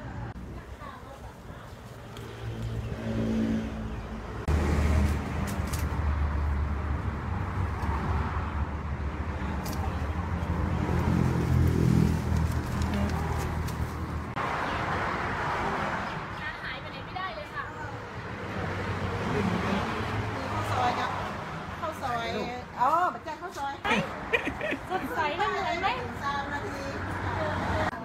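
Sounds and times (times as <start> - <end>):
vehicle engine rumbling: 0.0 - 14.6.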